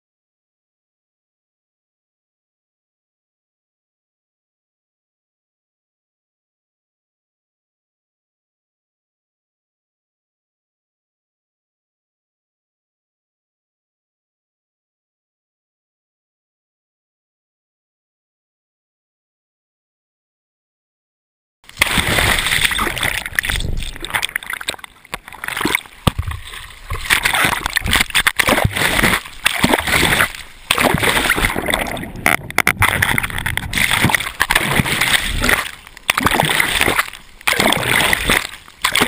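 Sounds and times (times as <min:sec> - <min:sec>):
whitewater splashing and rushing: 0:21.7 - 0:39.0.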